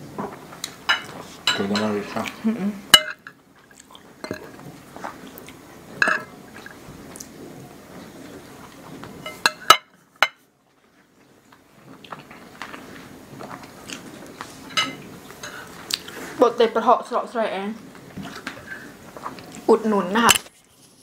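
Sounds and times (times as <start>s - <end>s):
cutlery clinking on plates: 0.9s - 2.0s, 2.9s - 3.4s, 6.0s - 6.3s, 9.2s - 10.4s, 14.7s - 15.7s
chewing: 3.6s - 5.6s, 10.8s - 16.4s, 18.0s - 19.7s.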